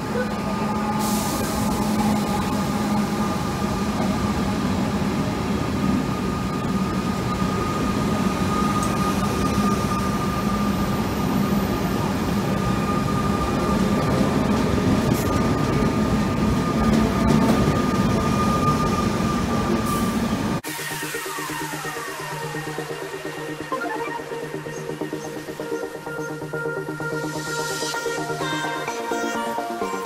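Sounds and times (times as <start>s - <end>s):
electric train passing: 0.0s - 30.0s
high tone: 21.8s - 30.0s.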